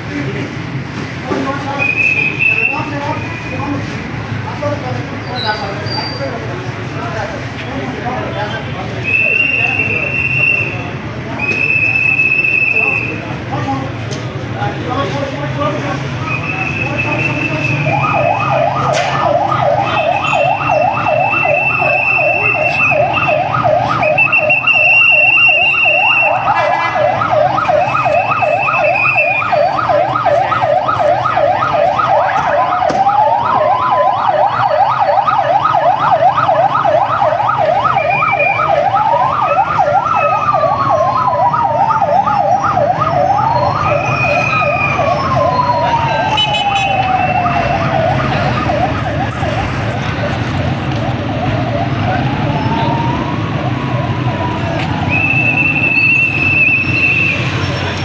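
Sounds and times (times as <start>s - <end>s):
siren wailing: 16.2s - 57.7s
siren yelping: 16.2s - 57.7s.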